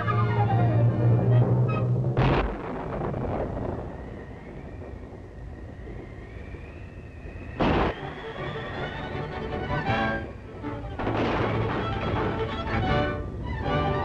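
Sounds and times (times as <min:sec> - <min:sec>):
music: 0:00.0 - 0:02.2, 0:08.0 - 0:14.0
whistling wind: 0:00.0 - 0:14.0
sharp crash: 0:01.3 - 0:03.8, 0:07.6 - 0:08.0, 0:11.0 - 0:12.4.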